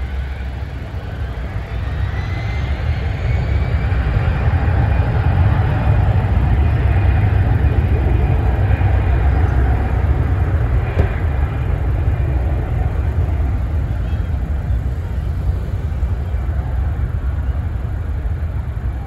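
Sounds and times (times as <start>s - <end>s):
jet engines rumbling: 0.0s - 19.0s.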